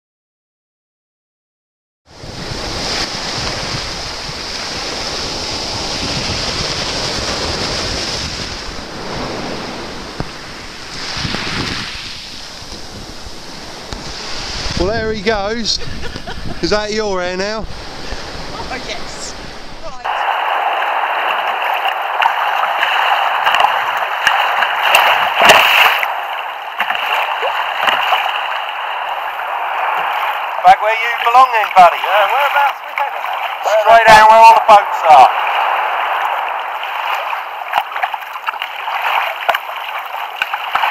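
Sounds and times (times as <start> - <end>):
small waves breaking on beach: 2.1 - 16.6, 17.2 - 40.9
wind noise on microphone: 2.1 - 26.3
water splashing against kayak: 2.2 - 16.7, 17.6 - 40.9.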